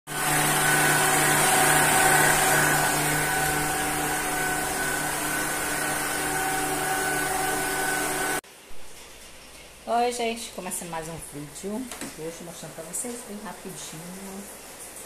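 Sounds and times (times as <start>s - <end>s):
stand mixer motor humming: 0.1s - 8.4s.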